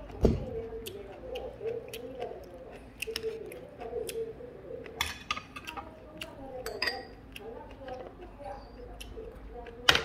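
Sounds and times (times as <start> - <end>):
muffled indistinct voice: 0.0 - 10.0
tableware clinking: 6.6 - 7.2.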